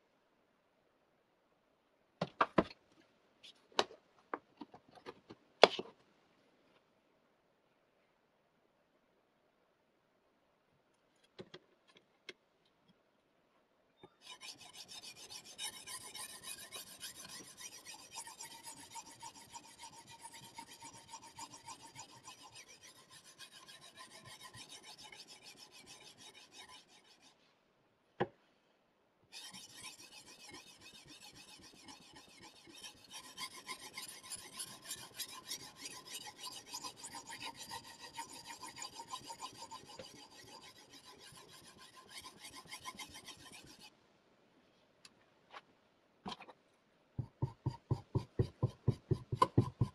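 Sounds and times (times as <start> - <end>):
sharpening stone scraping knife: 14.2 - 27.4, 29.4 - 43.9.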